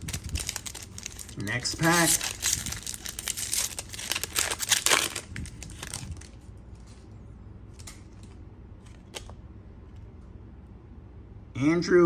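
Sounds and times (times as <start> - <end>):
foil wrapper crinkling and tearing: 0.0 - 7.0
cards rustling: 0.0 - 7.1, 7.7 - 9.4.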